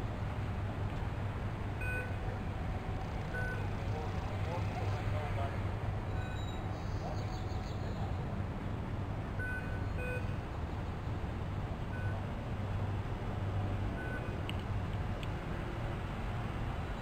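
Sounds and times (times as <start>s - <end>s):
low engine rumble: 0.0s - 17.0s
short high beeps: 1.8s - 2.2s, 6.1s - 6.6s.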